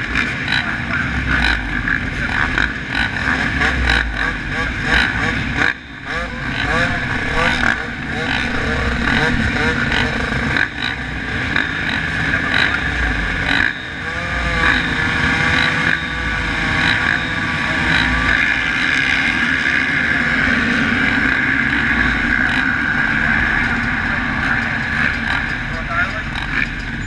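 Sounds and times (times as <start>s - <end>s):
motorbike engines idling and revving: 0.0s - 27.0s.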